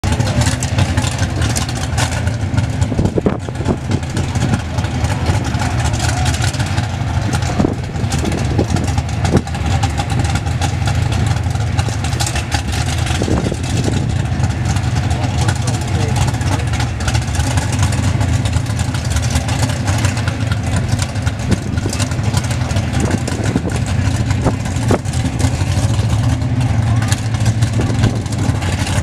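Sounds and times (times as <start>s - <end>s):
drag car engine idling loudly: 0.0s - 29.0s.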